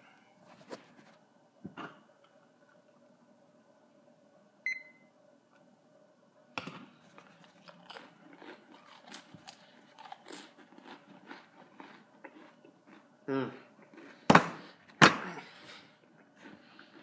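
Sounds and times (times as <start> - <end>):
digital timer beep: 4.7 - 5.0
crackers crunching: 6.8 - 17.0.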